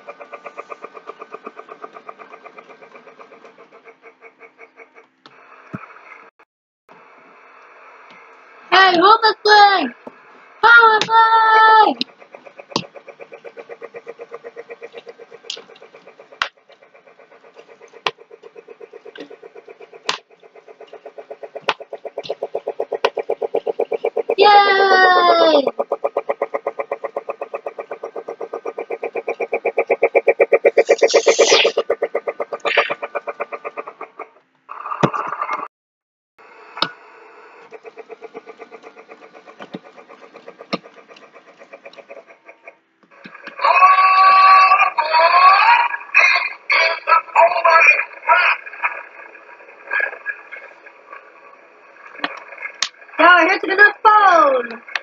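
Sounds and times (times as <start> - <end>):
toy train motor hum: 0.0 - 6.3, 6.9 - 35.7, 36.4 - 55.0
sharp clacks: 11.0 - 24.4.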